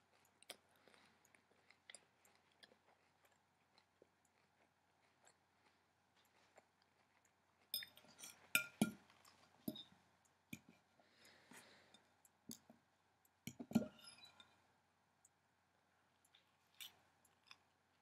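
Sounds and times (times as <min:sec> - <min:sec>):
metal fork clinking on a dish: 0:07.7 - 0:09.0, 0:13.5 - 0:14.6.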